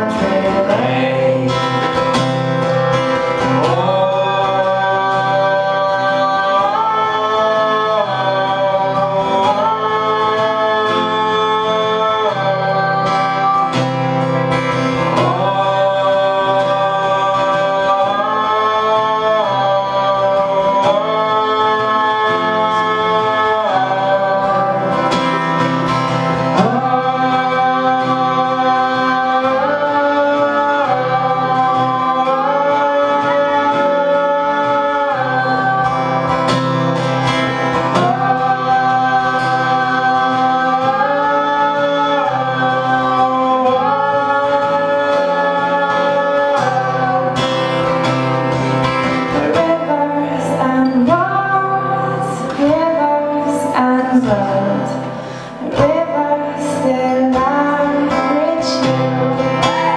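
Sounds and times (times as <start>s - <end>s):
acoustic guitar: 0.0s - 59.9s
people singing folk song: 0.0s - 59.9s.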